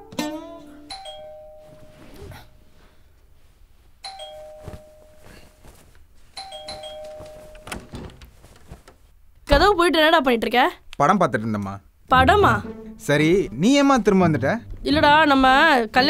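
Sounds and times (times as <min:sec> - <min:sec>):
two-tone doorbell chime: 0:00.9 - 0:02.1, 0:04.0 - 0:05.4, 0:06.4 - 0:07.7
soft thuds: 0:04.4 - 0:09.8.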